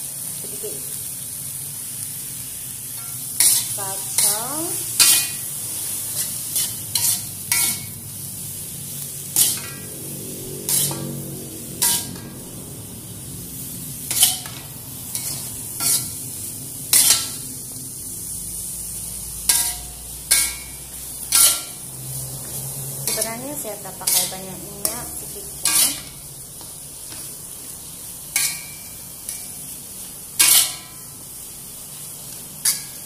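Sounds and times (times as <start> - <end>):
steady sizzle: 0.0 - 33.0
metal spatula scraping wok: 2.9 - 17.6, 19.2 - 27.4, 28.3 - 31.1, 32.6 - 33.0.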